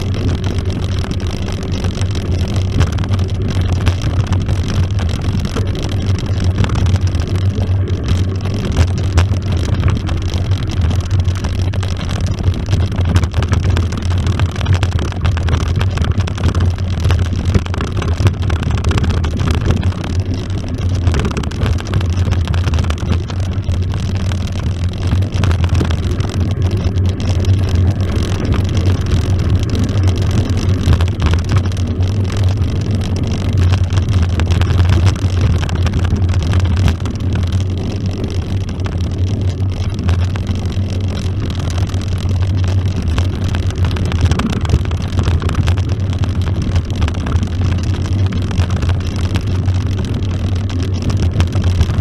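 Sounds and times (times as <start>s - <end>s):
bike rattling: 0.0s - 52.0s
bike tires rolling over gravel: 0.0s - 52.0s
wind on microphone: 0.0s - 52.0s.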